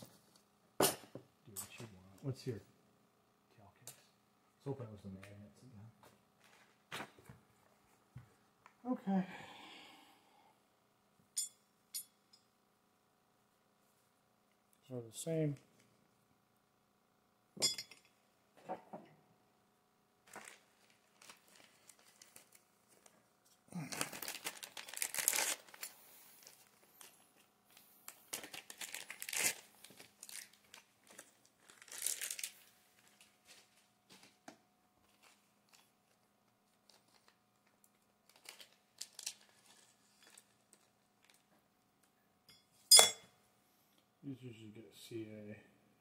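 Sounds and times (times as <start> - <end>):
plastic bag crinkling: 20.2 - 27.2, 28.0 - 33.8, 35.1 - 41.4.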